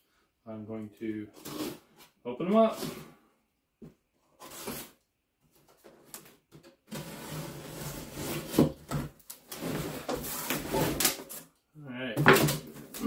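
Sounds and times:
cardboard flaps scraping and rustling: 6.9 - 11.4
packing tape cut and pulled: 9.2 - 11.6.

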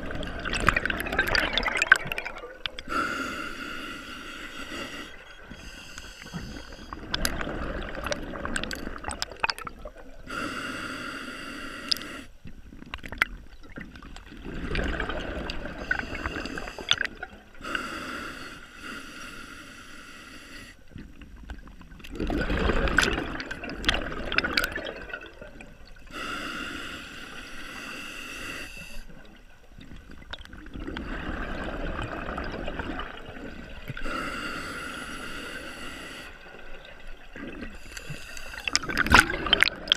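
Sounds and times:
exhaled bubbles rushing: 0.0 - 2.9, 6.4 - 10.2, 12.8 - 17.3, 22.0 - 26.0, 29.9 - 34.0, 38.5 - 39.9
hissing inhale through regulator: 2.6 - 7.4, 10.2 - 12.4, 15.6 - 20.9, 26.0 - 29.2, 33.8 - 36.7, 37.6 - 39.2.

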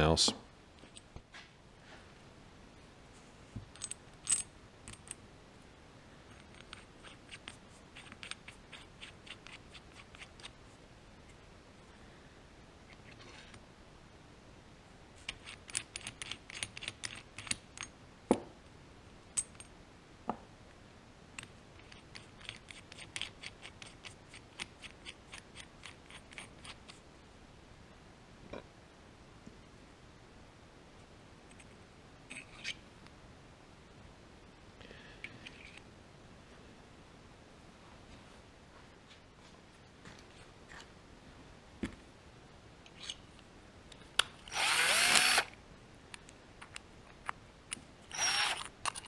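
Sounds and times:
small steel parts clicking: 3.7 - 5.2, 6.3 - 10.6, 15.2 - 17.9, 21.4 - 27.0, 44.2 - 49.0.

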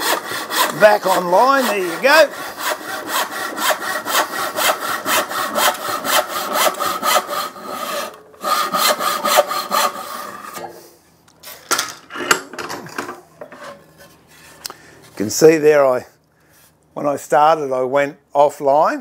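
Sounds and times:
hand saw ripping wood: 0.0 - 10.7.

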